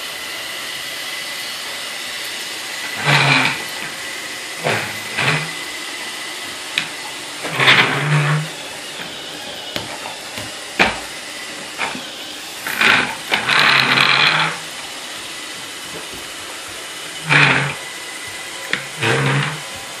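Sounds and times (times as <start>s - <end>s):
wooden bike wheels rumbling on floor: 2.9s - 4.0s, 4.6s - 5.6s, 6.8s - 20.0s.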